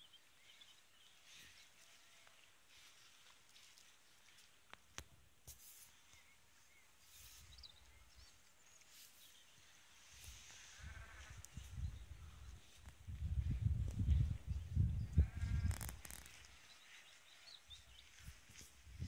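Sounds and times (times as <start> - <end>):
faint soft clicks: 4.6 - 6.3
wind rumble on microphone: 10.2 - 16.6, 17.8 - 19.0
faint bleat-like animal call: 10.5 - 11.6, 15.0 - 16.4.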